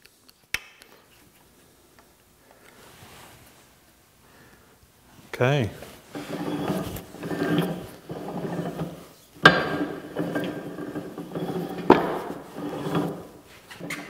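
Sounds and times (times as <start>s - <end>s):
arbor press rattly whirr: 6.1s - 14.0s.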